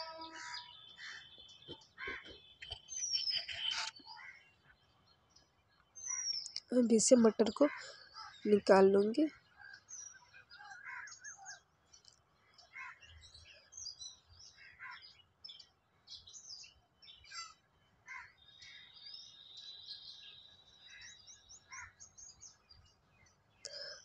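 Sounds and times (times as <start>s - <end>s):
faint birds chirping: 0.0s - 24.0s.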